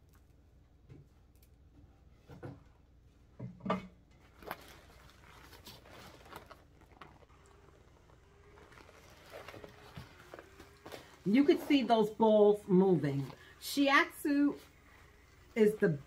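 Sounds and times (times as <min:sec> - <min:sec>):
fabric massager rustling and knocking: 0:04.2 - 0:16.0
massager motor hum: 0:04.2 - 0:16.0.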